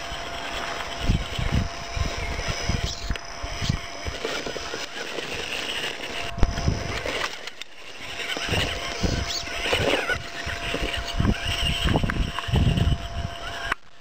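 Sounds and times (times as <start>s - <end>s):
electric motor whining: 0.0s - 14.0s.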